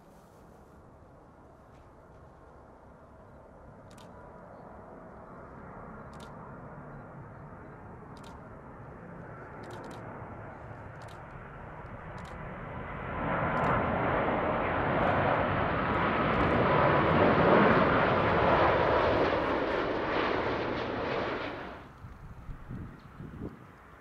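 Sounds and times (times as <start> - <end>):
jet airliner rushing: 11.5 - 23.7.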